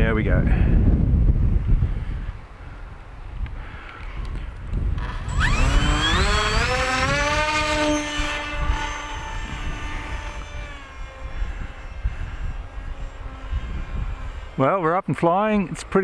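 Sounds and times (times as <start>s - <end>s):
wind rumble on microphone: 0.0s - 16.0s
electric motor propeller whining: 4.8s - 15.1s.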